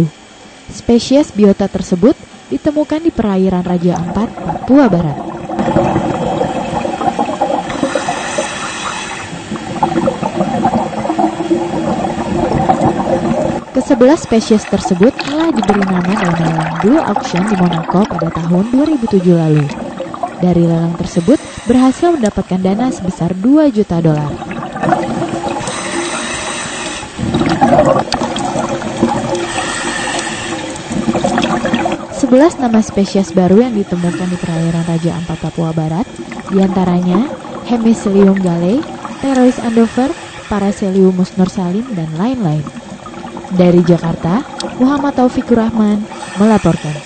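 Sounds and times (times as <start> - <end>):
underwater rushing hiss: 4.1 - 20.4, 21.0 - 22.3, 24.4 - 32.7, 33.8 - 40.8, 46.0 - 47.0.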